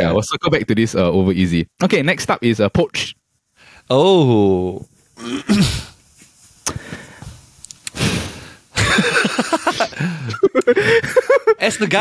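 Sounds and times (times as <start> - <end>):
men laughing: 8.8 - 12.0.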